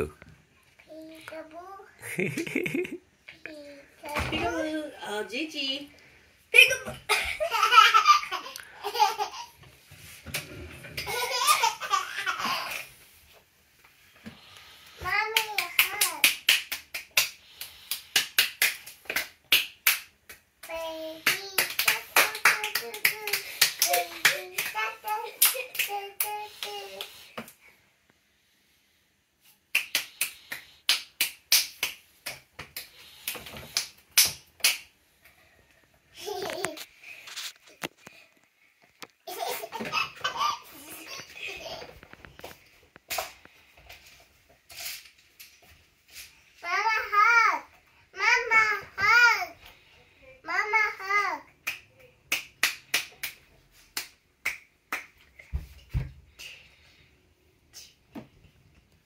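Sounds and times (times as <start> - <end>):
young children laughing: 2.0 - 3.0, 6.9 - 9.6
children clapping hands: 15.3 - 27.1, 29.7 - 34.8, 51.6 - 53.4, 54.0 - 55.2
child singsong voice: 20.7 - 27.3.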